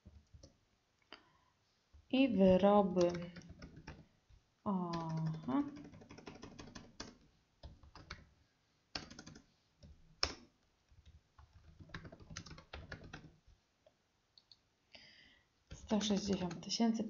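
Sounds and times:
typing on computer keyboard: 0:02.9 - 0:04.1, 0:04.8 - 0:08.3, 0:08.9 - 0:13.4, 0:15.7 - 0:16.7.

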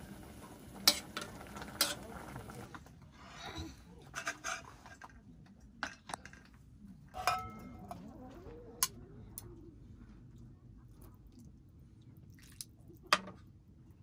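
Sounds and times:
utensils clinking on tableware: 0:07.2 - 0:08.0.

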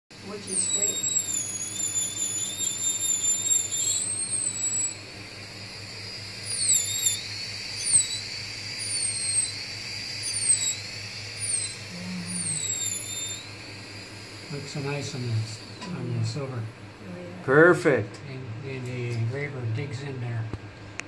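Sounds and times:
electric engraving pen whining: 0:00.2 - 0:16.7.

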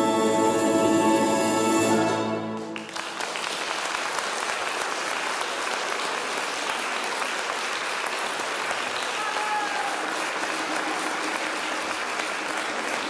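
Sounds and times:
folk orchestra final chord: 0:00.0 - 0:03.1
audience applauding: 0:01.9 - 0:13.0.

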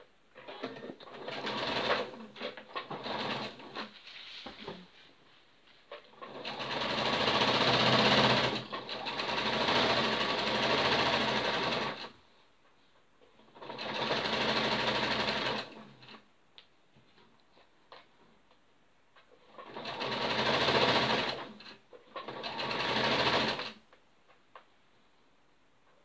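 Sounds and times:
sewing machine stitching: 0:00.4 - 0:04.0, 0:05.9 - 0:12.2, 0:13.4 - 0:16.2, 0:19.4 - 0:23.8.

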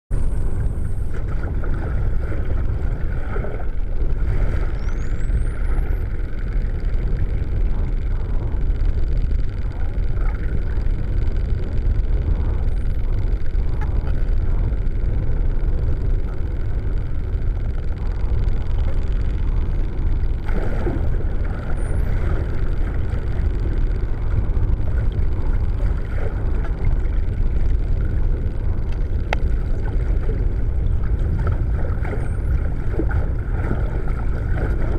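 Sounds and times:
muffled underwater rumble: 0:00.1 - 0:34.9.

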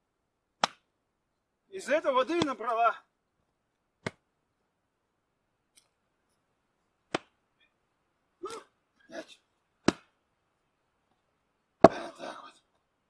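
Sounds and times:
axe splitting log: 0:09.8 - 0:10.1, 0:11.8 - 0:12.1.

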